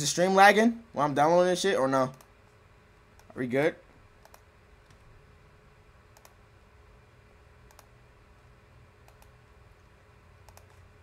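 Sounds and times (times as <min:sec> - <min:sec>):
low room hum: 0:00.0 - 0:11.0
faint computer clicks: 0:04.2 - 0:05.0, 0:06.1 - 0:06.4, 0:07.6 - 0:07.9, 0:09.0 - 0:09.4, 0:10.4 - 0:10.8.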